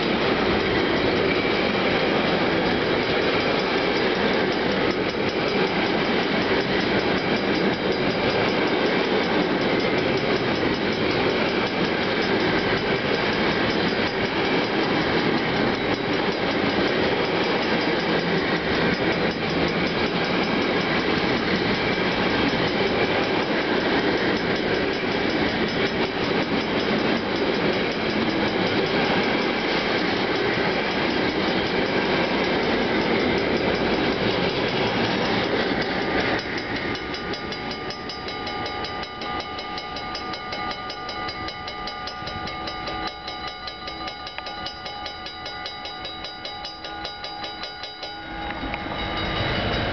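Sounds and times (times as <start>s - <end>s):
freight train wheels on rails: 0.0s - 49.9s
level crossing warning bell: 0.0s - 49.9s.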